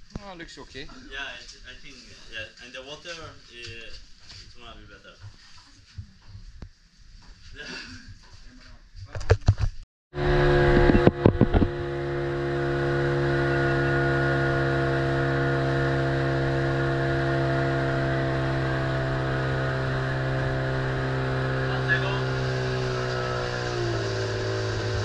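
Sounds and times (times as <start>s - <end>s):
boat engine drone: 10.2s - 25.0s.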